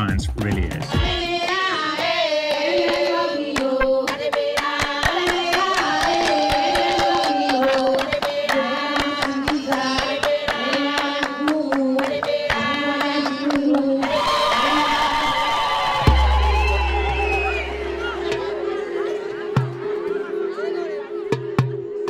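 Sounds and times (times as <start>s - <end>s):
women singing together: 1.0s - 20.1s
sharp hand claps: 1.4s - 13.9s.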